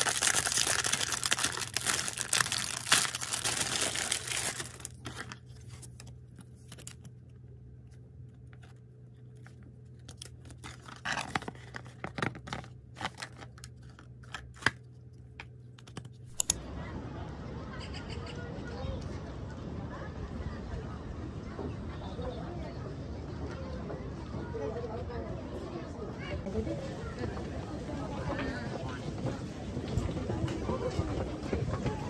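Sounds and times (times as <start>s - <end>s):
plastic packaging crinkling and tearing: 0.0s - 7.1s, 9.4s - 14.8s
cardboard and plastic rustling: 0.0s - 16.5s.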